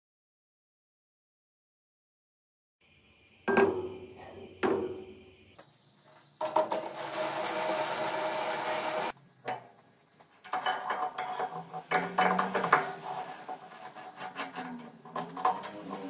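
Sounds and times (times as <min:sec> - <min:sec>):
lathe whirring: 0:06.4 - 0:09.2.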